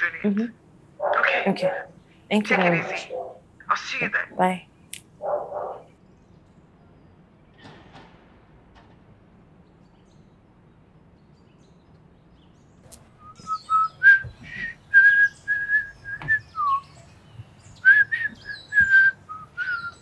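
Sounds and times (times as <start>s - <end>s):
man whistling a tune: 13.2s - 16.8s, 17.8s - 20.0s.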